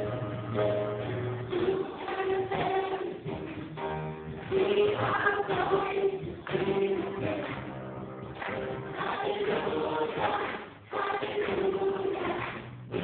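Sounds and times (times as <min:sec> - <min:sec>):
gospel choir singing: 0:01.5 - 0:03.3, 0:04.5 - 0:07.8, 0:08.8 - 0:12.7.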